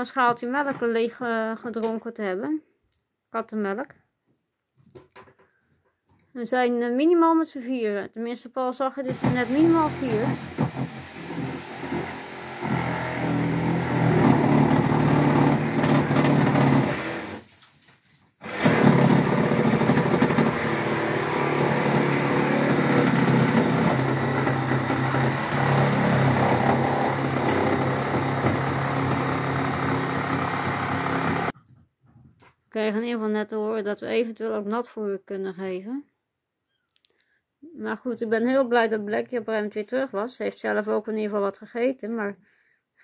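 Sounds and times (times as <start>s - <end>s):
power tool cutting wood: 9.1s - 17.5s, 18.4s - 31.6s.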